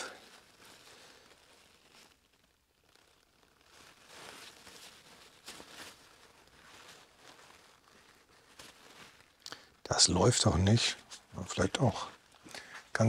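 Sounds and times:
paper towel and rag rustling: 0:00.0 - 0:13.0.

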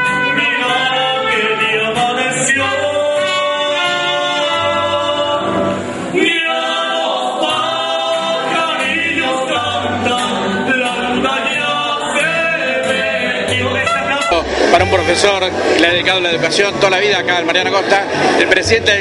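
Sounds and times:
man singing into microphone: 0:00.0 - 0:15.0
strummed guitars: 0:00.0 - 0:19.0
low bass guitar notes: 0:13.5 - 0:19.0.

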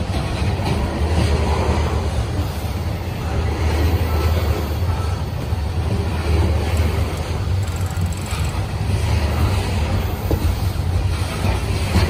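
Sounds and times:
freight train rumbling past: 0:00.0 - 0:12.0
faint rattle: 0:06.6 - 0:08.8.

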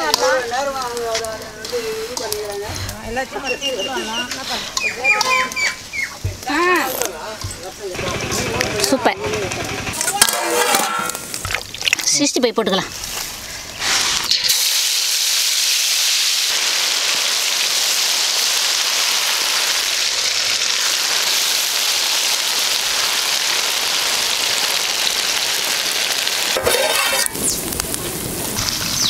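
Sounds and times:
chicken deep-frying sizzle: 0:12.9 - 0:29.0.

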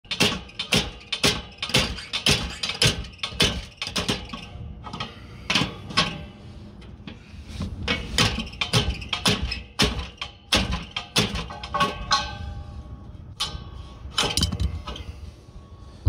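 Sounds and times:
sharp metal knocks: 0:00.1 - 0:04.5, 0:08.2 - 0:12.4.

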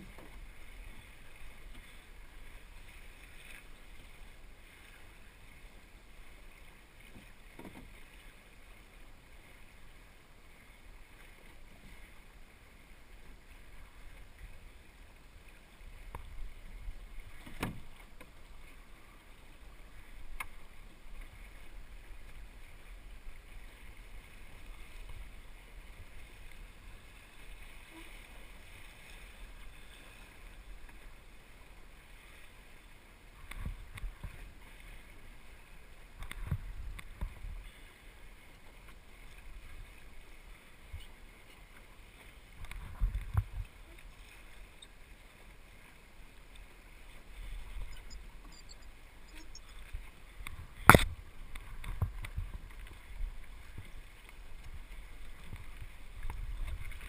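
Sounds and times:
water splashing along hull: 0:00.0 - 0:57.0
boat knocks: 0:07.1 - 0:08.0, 0:17.4 - 0:18.3.

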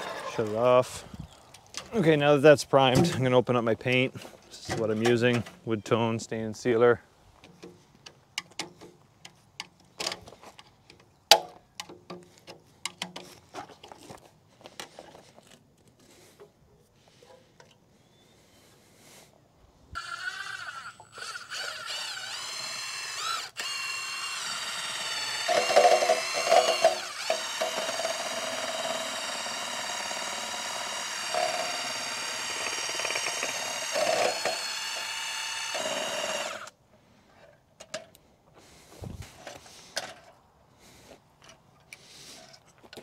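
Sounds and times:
cordless drill motor whine: 0:20.0 - 0:36.8.

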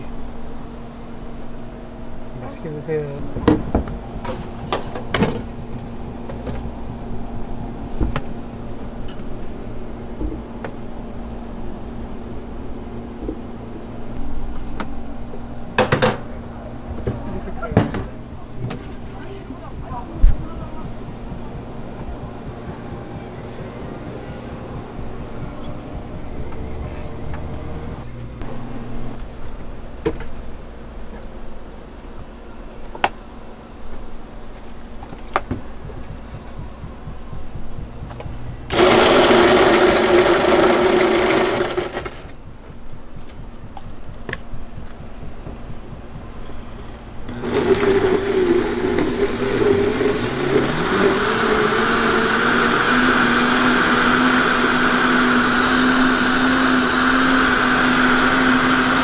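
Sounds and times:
blender motor running: 0:38.7 - 0:42.3, 0:47.3 - 0:59.0.

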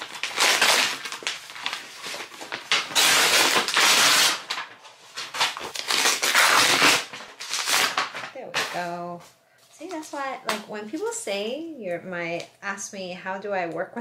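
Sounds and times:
cardboard mailer tearing: 0:00.0 - 0:08.8.

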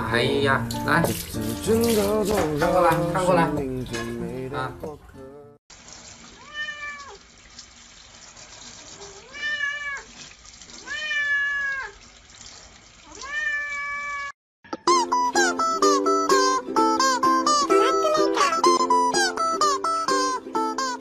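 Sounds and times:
cat meowing: 0:06.4 - 0:07.2, 0:09.0 - 0:10.2, 0:10.8 - 0:12.0, 0:13.1 - 0:14.3, 0:17.7 - 0:18.8.

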